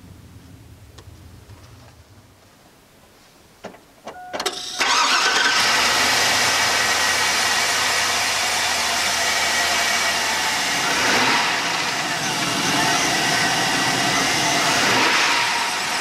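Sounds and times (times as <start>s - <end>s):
engine cranking: 4.4s - 6.8s
engine idling: 4.6s - 16.0s.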